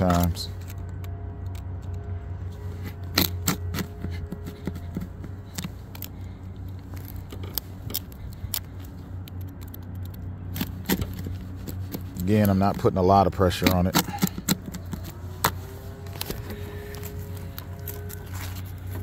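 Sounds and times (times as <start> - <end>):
steady low hum: 0.0 - 19.0
knife scraping roof shingle: 2.8 - 6.3, 10.4 - 19.0.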